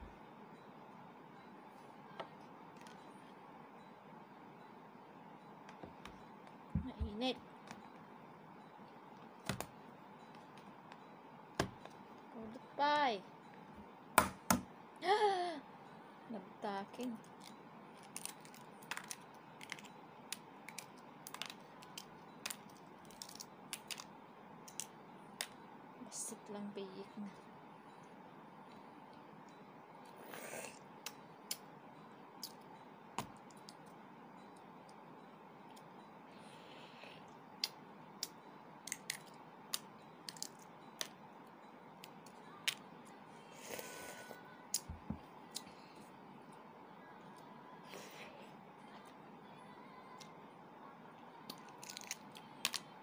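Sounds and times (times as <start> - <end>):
eggshell cracking: 17.3 - 24.1, 37.6 - 41.1, 51.5 - 52.8.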